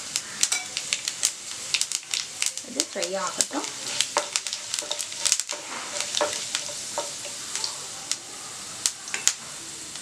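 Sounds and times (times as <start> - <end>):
seeds popping: 0.0 - 7.8
spices sizzling in hot oil: 0.0 - 10.0
wooden spatula stirring: 1.7 - 7.8.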